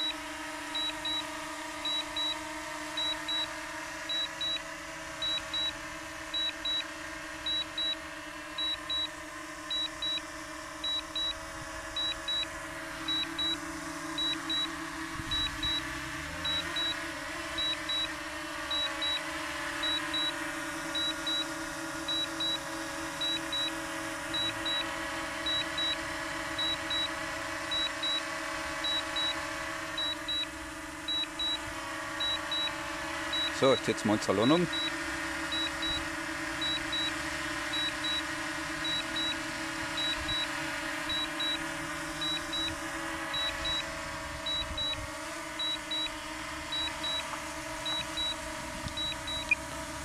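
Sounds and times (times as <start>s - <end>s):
drone propellers humming: 0.0s - 50.0s
high double beep: 42.2s - 42.7s, 49.0s - 49.6s.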